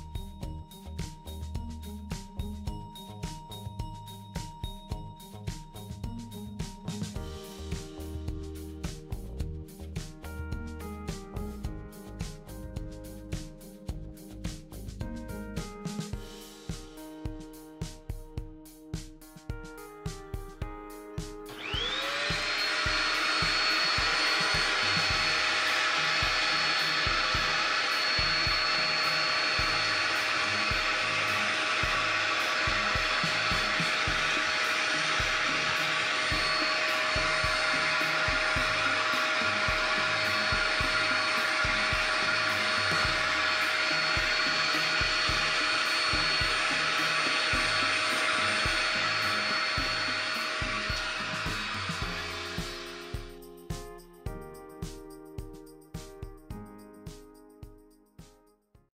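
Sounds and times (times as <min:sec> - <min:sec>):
dust collector motor whining: 0:21.5 - 0:53.1
hose sucking up sawdust: 0:21.5 - 0:53.2.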